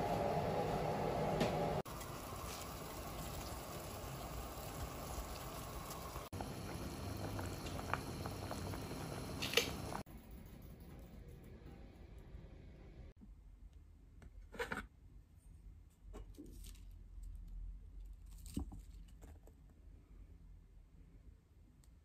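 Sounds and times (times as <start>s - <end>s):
pot of water simmering: 0.0s - 10.1s.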